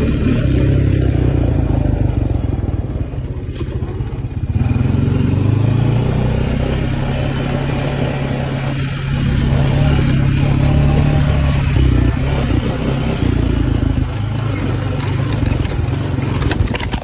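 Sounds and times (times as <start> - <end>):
quad bike engine droning: 0.0 - 17.0.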